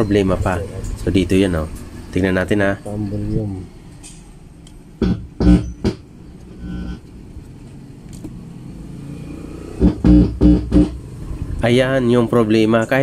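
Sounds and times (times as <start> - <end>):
plucked bass notes through amplifier: 5.0 - 7.0, 9.8 - 11.0.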